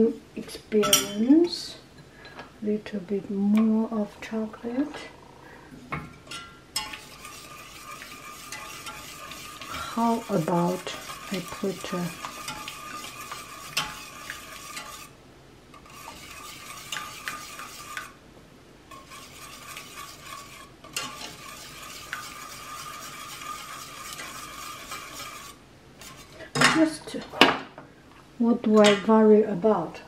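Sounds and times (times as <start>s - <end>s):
whisk clicking against saucepan: 6.3s - 15.1s, 15.8s - 18.2s, 18.9s - 26.3s.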